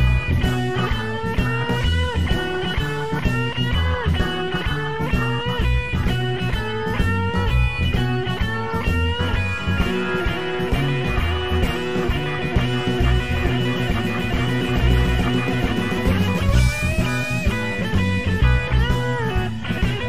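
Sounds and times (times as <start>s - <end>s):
bass: 0.0s - 20.0s
drums: 0.0s - 20.0s
electric guitar lead: 0.0s - 20.0s
held organ chords: 0.0s - 20.0s.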